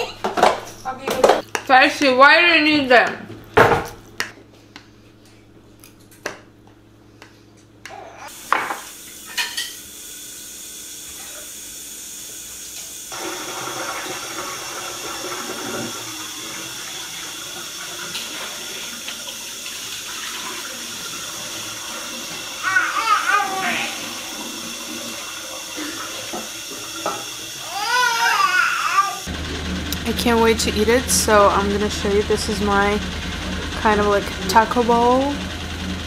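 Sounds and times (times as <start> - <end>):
tap running into sink: 24.2 - 27.6.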